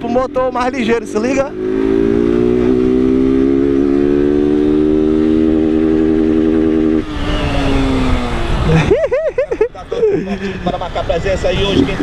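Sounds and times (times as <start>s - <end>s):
motorcycle engine revving: 0.0s - 9.0s.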